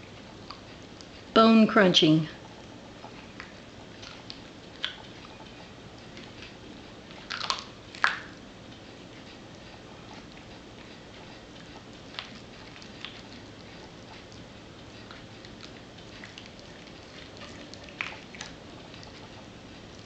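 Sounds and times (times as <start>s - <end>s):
dog chewing: 2.5s - 20.0s
dog crunching bone: 11.6s - 19.4s.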